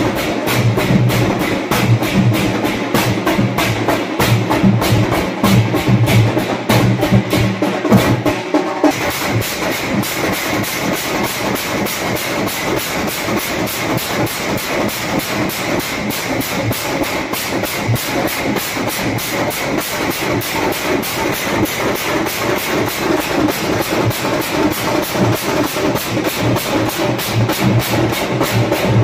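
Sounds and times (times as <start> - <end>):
fast drum percussion music: 0.0 - 29.0.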